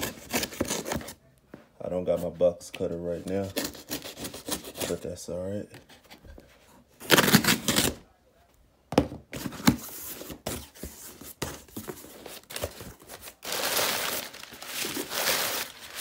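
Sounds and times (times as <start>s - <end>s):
cardboard ripping: 7.0s - 8.0s, 12.0s - 16.0s
packing paper rustling: 9.8s - 16.0s.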